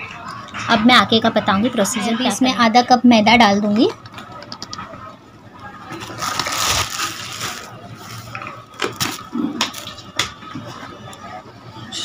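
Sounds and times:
rustling: 6.0s - 8.3s.

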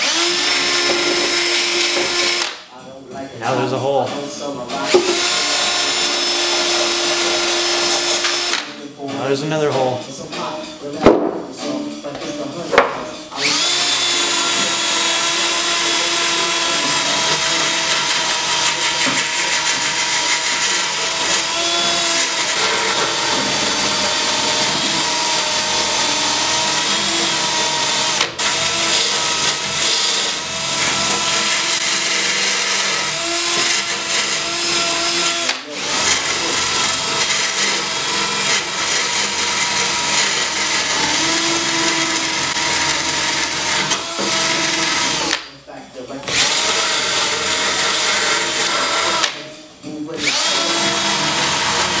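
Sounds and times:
rotary tool motor whine: 13.4s - 45.4s, 50.2s - 52.0s.

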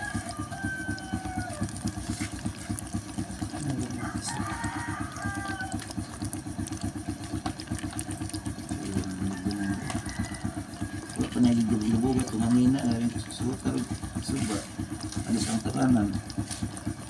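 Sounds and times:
rooster crowing: 0.0s - 2.1s, 3.8s - 6.2s, 9.0s - 12.7s.

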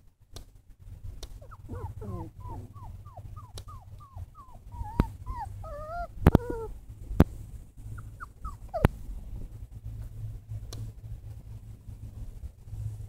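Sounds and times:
puppies whimpering: 1.4s - 6.8s, 8.0s - 8.9s.

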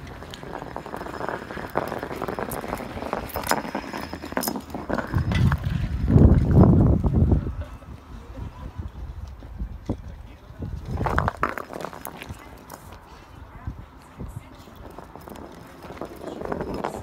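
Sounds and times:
rock scraping on asphalt: 0.0s - 7.2s, 10.6s - 13.2s, 14.4s - 17.0s.

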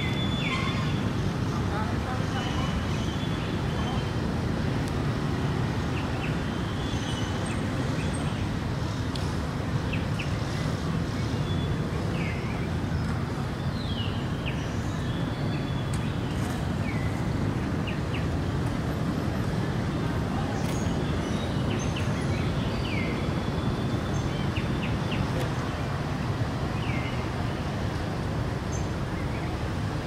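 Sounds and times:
bird chirps and calls: 0.0s - 1.0s
distant road traffic rumble: 0.0s - 30.0s.

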